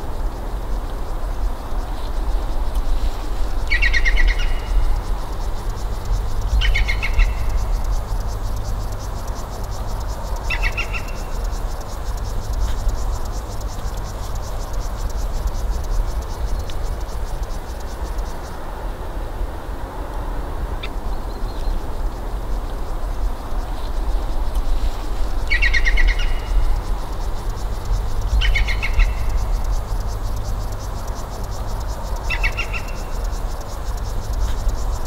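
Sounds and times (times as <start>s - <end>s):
steady low rumble: 0.0s - 32.3s
faint fast high ticking: 0.2s - 18.8s, 21.6s - 35.0s
songbird calling: 3.0s - 18.3s, 24.8s - 35.0s.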